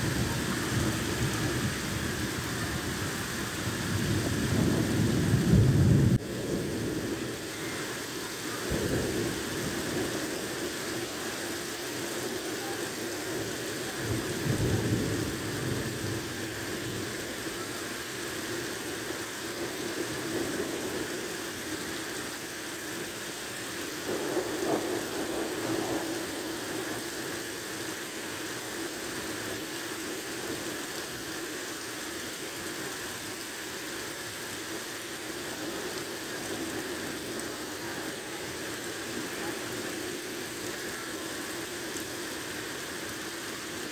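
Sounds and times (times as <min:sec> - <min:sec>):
thunder rumbling: 0:00.0 - 0:11.4, 0:12.2 - 0:17.5, 0:24.0 - 0:27.3
heavy rain pouring: 0:00.0 - 0:43.9.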